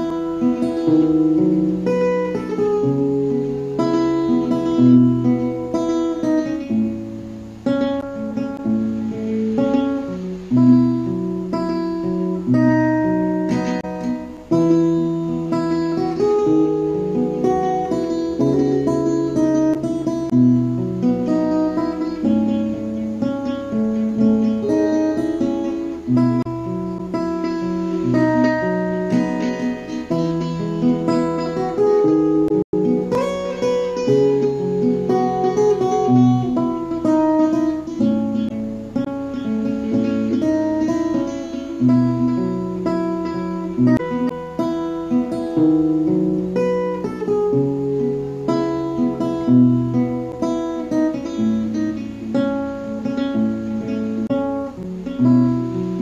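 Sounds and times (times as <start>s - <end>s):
acoustic guitar slow chords: 0.0s - 56.0s.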